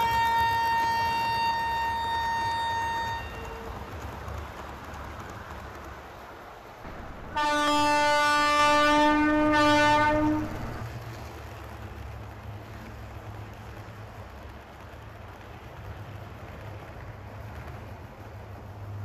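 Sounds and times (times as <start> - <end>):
model trains rumbling on track: 0.0 - 19.0
locomotive horn blast: 6.9 - 10.9.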